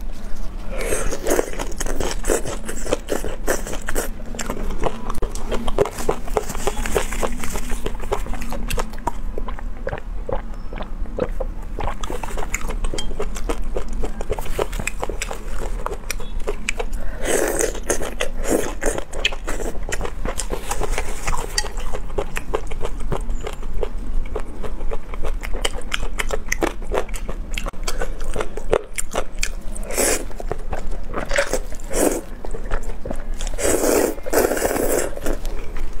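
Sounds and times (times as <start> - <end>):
wet chewing: 0.1 - 36.0
slurping noodles: 31.2 - 32.3, 33.5 - 35.5.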